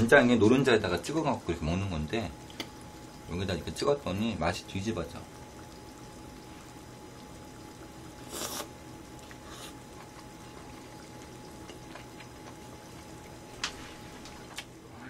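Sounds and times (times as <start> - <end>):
noodle slurping: 8.2 - 12.6
faint chewing clicks: 8.3 - 14.7.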